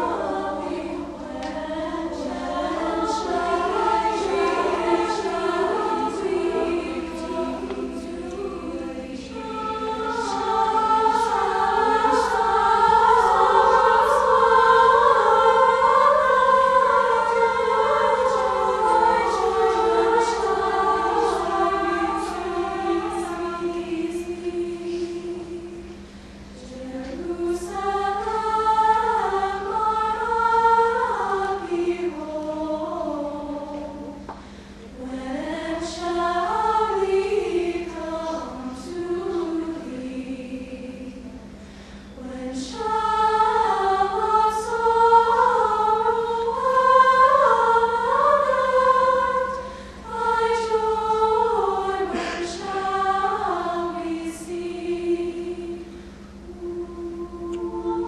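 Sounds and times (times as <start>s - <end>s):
girls' choir singing a cappella: 0.0s - 58.0s
singers breathing: 34.4s - 34.9s, 41.6s - 42.2s, 49.5s - 50.1s, 55.8s - 56.4s.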